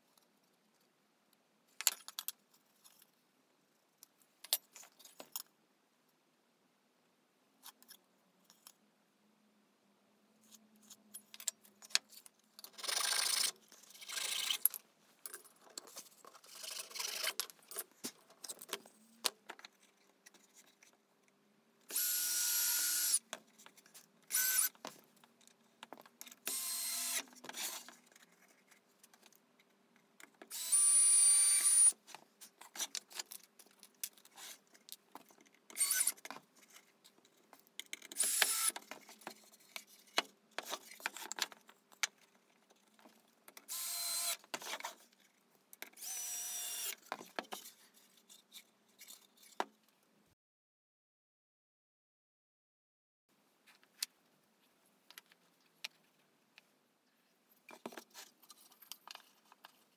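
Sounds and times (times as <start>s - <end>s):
cordless drill driving screws: 21.9s - 23.2s, 24.3s - 24.8s, 26.4s - 27.3s, 30.5s - 32.0s, 35.8s - 36.2s, 38.2s - 38.8s, 43.7s - 44.4s, 46.0s - 47.0s.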